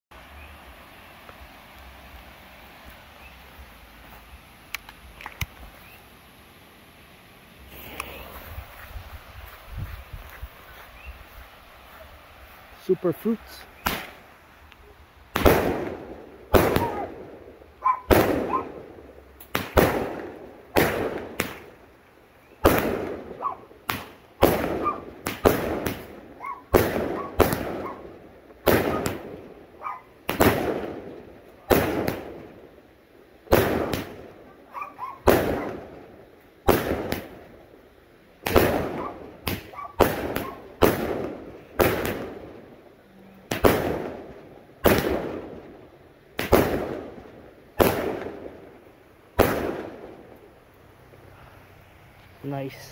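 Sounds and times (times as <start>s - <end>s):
fireworks bangs: 7.6s - 10.1s, 12.8s - 14.3s, 15.2s - 22.0s, 22.6s - 32.8s, 33.4s - 37.8s, 38.4s - 42.8s, 43.4s - 50.6s.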